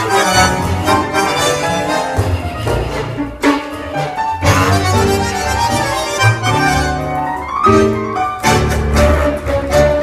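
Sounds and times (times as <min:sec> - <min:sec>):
tango orchestra playing: 0:00.0 - 0:10.0.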